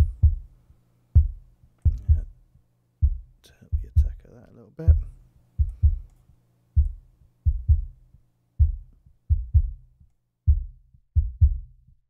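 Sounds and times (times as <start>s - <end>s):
muffled kick drum thuds: 0.0s - 0.6s, 1.2s - 2.4s, 3.0s - 4.2s, 4.9s - 6.1s, 6.8s - 8.0s, 8.6s - 9.9s, 10.5s - 12.0s.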